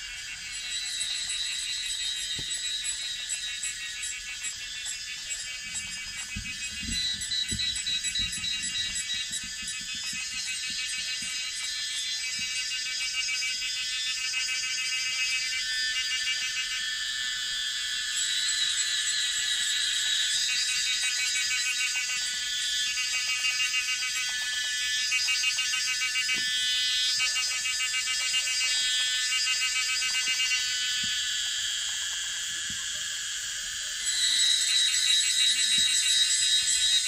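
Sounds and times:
cicadas chorus: 0.0 - 37.0
shrill cicada: 0.0 - 37.0.

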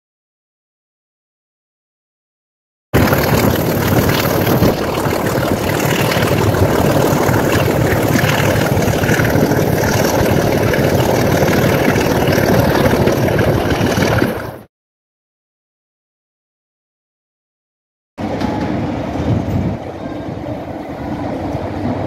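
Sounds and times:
rushing air: 3.0 - 14.7
train running at speed: 3.0 - 14.7, 18.2 - 22.0.

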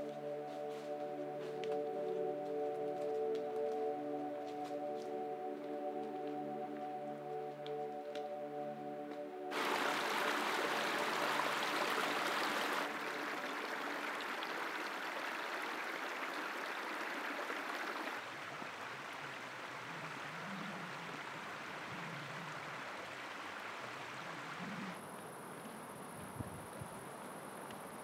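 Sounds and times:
stream trickling over rocks: 9.5 - 20.2.

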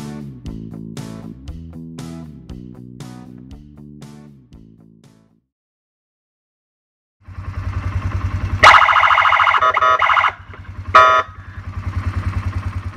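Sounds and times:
atv engine idling: 7.3 - 12.9
electronic siren blasts: 8.6 - 11.6.

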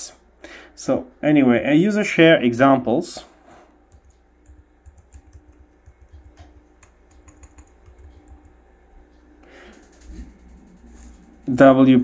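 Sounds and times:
laptop keyboard typing clicks: 3.9 - 8.6, 9.6 - 11.4.

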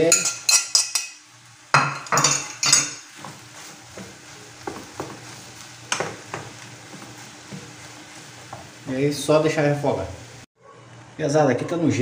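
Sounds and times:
food sizzling in a frying pan: 0.0 - 11.2
wooden spoon knocking and scraping pan: 1.8 - 8.8.

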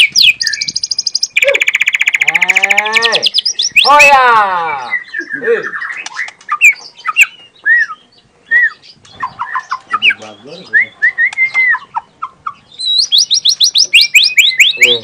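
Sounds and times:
bird singing whistled notes: 0.0 - 4.0, 4.7 - 15.0
bird chattering: 0.0 - 4.2, 8.6 - 15.0.

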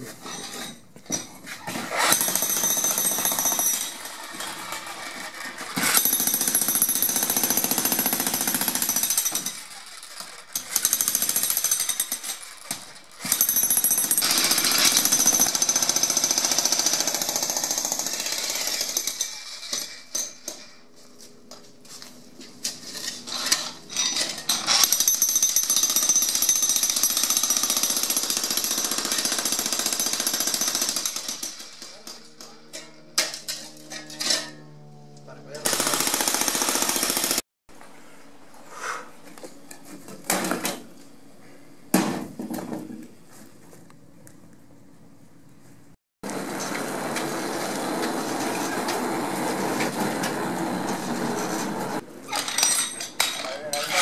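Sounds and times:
jackhammer breaking concrete: 1.9 - 20.3, 23.3 - 32.5, 35.6 - 37.4.

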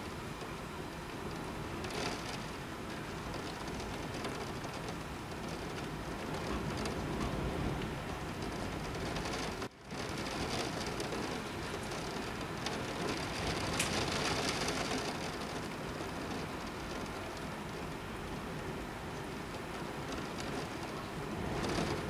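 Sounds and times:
heavy rain pouring: 0.0 - 22.0.

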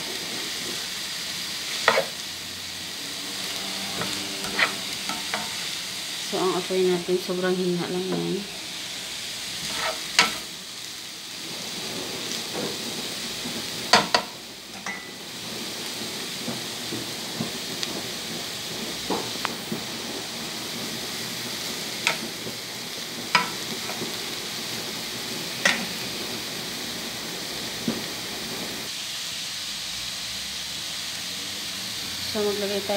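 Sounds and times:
vegetables sizzling in a frying pan: 0.0 - 32.9
utensil scraping a pan: 1.7 - 2.2, 3.4 - 5.8, 9.6 - 10.5.

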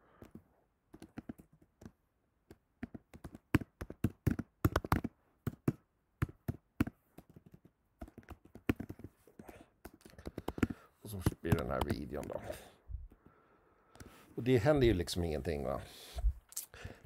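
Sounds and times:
typing on computer keyboard: 2.8 - 12.0.

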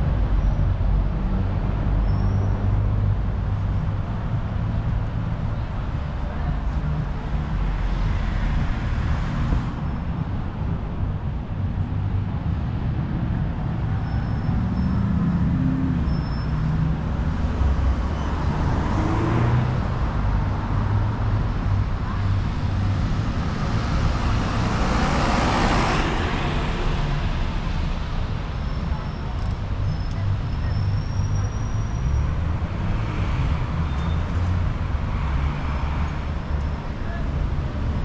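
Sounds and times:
traffic rumble: 0.0 - 38.0
vehicles passing close: 0.0 - 38.0.

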